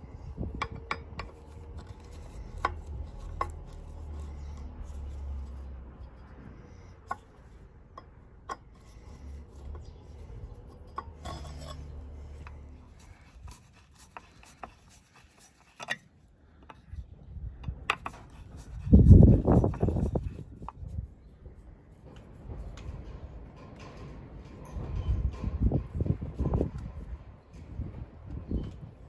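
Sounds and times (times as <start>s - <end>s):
screwdriver clicking and scraping metal: 8.5s - 16.8s.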